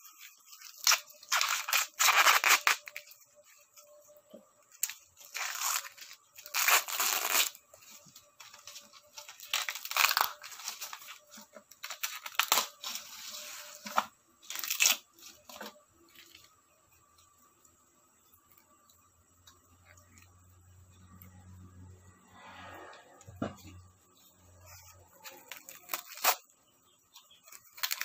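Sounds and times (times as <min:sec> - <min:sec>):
corn husks ripping: 0:00.0 - 0:03.9, 0:04.6 - 0:16.5, 0:24.6 - 0:26.6, 0:27.2 - 0:28.0.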